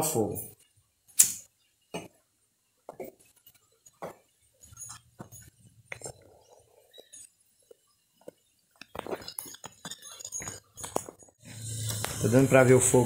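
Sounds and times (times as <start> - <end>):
objects being handled clicking: 6.9 - 12.2.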